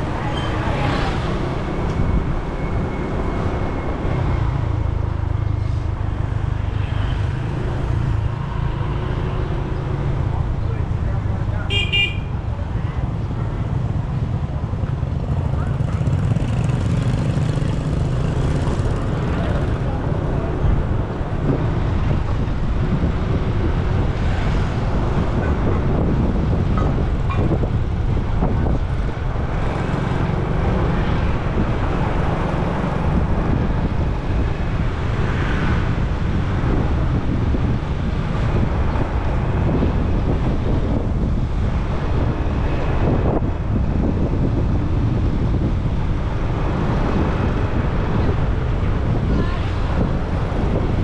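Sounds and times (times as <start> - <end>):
wind rushing over microphone: 0.0 - 51.0.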